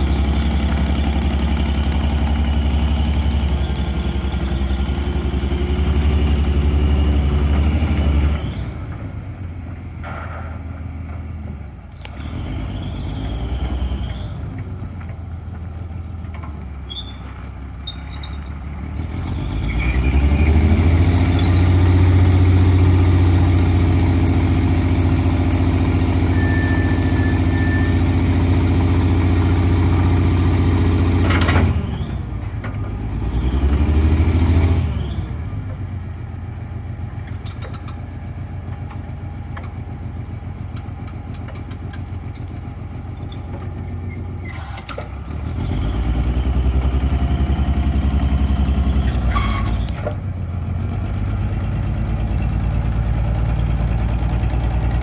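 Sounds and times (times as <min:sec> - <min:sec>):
forklift engine revving: 0:12.0 - 0:14.6, 0:18.8 - 0:36.0, 0:36.7 - 0:50.0.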